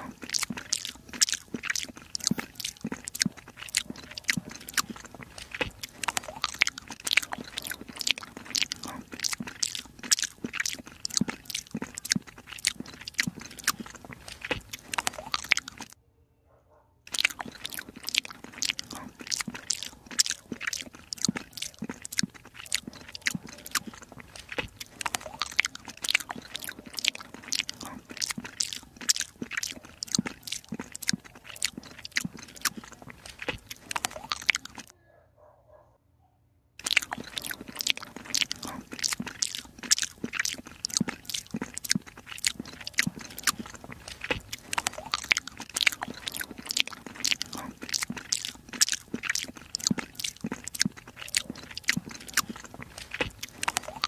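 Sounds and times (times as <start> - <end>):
kitten chewing and lapping food: 0.0 - 16.0, 17.1 - 34.9, 36.8 - 54.0.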